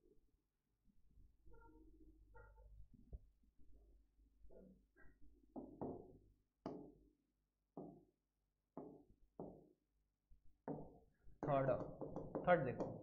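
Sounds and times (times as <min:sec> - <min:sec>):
faint knocks and taps: 0:05.5 - 0:07.0, 0:07.8 - 0:08.1, 0:08.8 - 0:09.7, 0:10.6 - 0:13.0.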